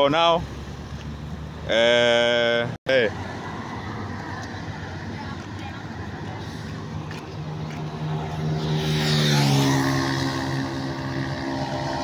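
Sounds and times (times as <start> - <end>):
road traffic: 0.0 - 12.0
vehicle engine passing by: 5.8 - 12.0.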